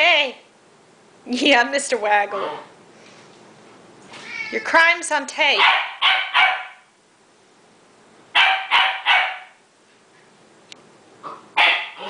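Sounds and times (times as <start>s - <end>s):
puppy barking: 5.6s - 6.9s, 8.4s - 9.6s, 11.2s - 12.0s.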